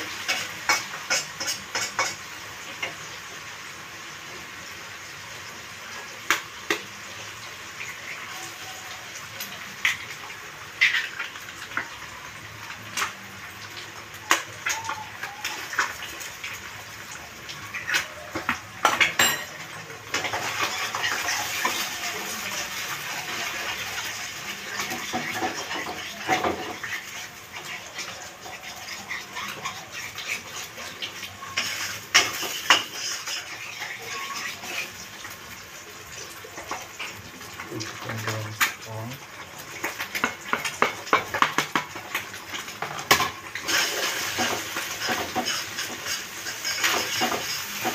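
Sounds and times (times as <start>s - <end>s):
frying sizzle: 0.0s - 47.9s
metal spatula scraping a wok: 0.1s - 2.3s, 31.6s - 35.0s, 43.6s - 47.9s.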